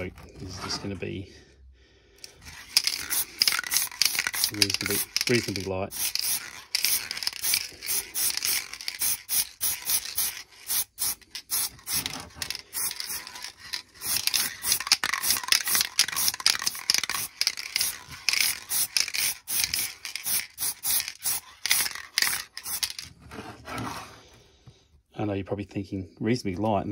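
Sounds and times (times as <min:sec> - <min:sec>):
spray paint can hissing: 0:02.3 - 0:23.0.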